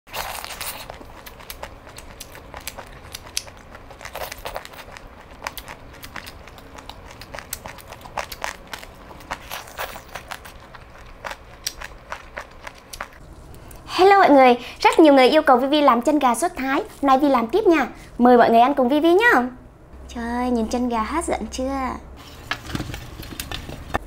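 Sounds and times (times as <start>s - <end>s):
crunchy chewing and biting: 0.1s - 13.3s.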